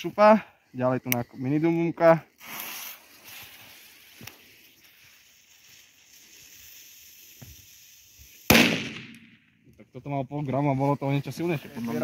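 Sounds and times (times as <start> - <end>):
fuse hissing: 0.0 - 9.2
firecracker bang: 8.5 - 9.5.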